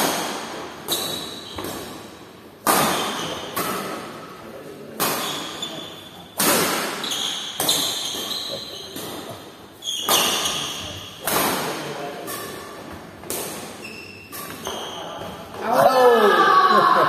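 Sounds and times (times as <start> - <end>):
rackets hitting shuttlecock: 0.0 - 4.1, 4.9 - 5.6, 6.4 - 9.4, 10.0 - 15.6.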